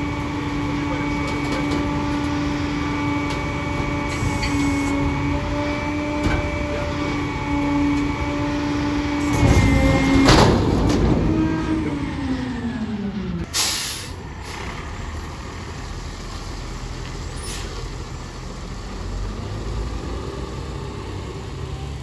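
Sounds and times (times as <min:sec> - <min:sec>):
diesel engine rumble: 0:00.0 - 0:22.0
air brakes hissing: 0:13.5 - 0:14.7, 0:17.3 - 0:17.8.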